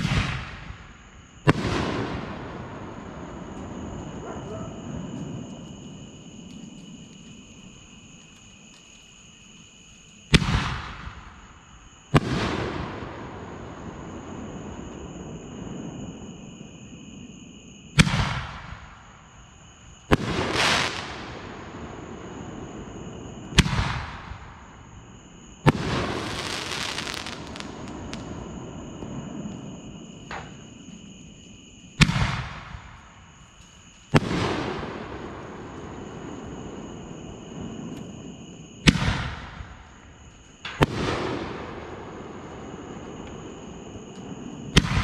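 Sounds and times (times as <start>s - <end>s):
crickets chirping: 0.0s - 45.0s
firework hissing tail: 20.0s - 24.6s, 25.6s - 45.0s.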